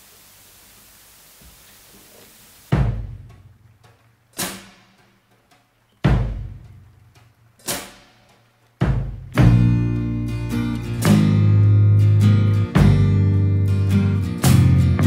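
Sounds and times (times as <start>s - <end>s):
bass drum hits: 2.7s - 3.3s, 8.8s - 9.9s
snare drum hits: 4.4s - 5.1s, 7.6s - 9.8s.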